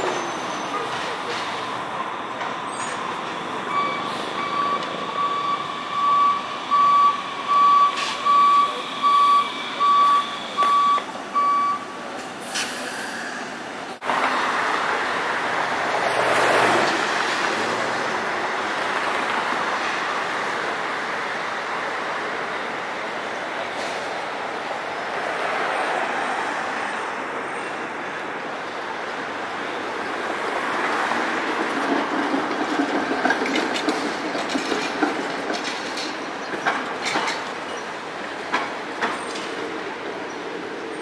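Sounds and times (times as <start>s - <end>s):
street traffic noise: 0.0s - 41.0s
electronic warning beeps: 3.6s - 11.8s.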